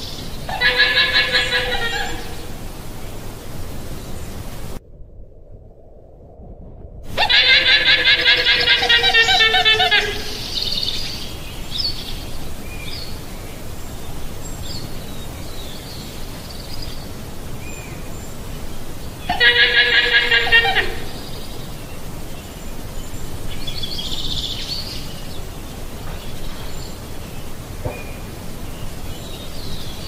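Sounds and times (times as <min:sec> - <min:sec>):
llama calling: 0:00.5 - 0:02.6, 0:07.1 - 0:10.5, 0:19.3 - 0:21.2.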